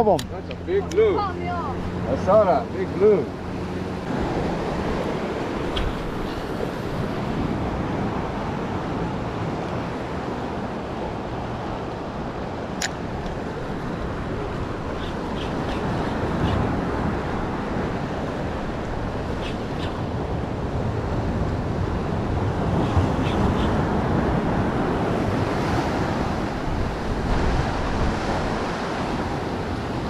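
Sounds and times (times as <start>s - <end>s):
wind rushing over microphone: 0.0s - 30.0s
surf breaking on choppy water: 1.0s - 30.0s
sharp click: 12.8s - 13.0s.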